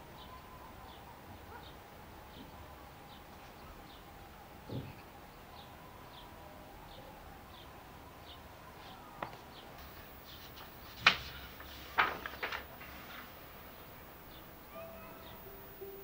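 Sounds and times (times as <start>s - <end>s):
faint high bird chirps: 0.1s - 1.8s, 14.3s - 16.0s
notebook pages turning: 9.2s - 13.4s.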